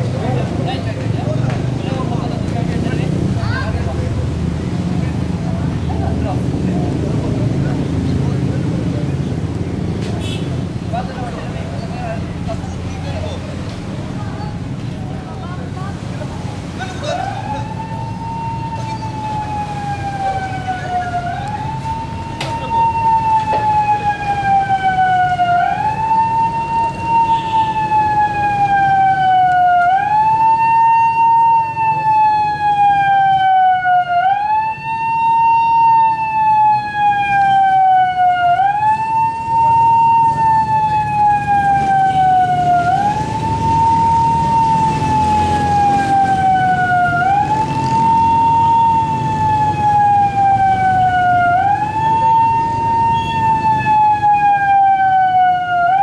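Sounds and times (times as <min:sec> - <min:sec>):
siren wailing: 0:17.0 - 0:56.0.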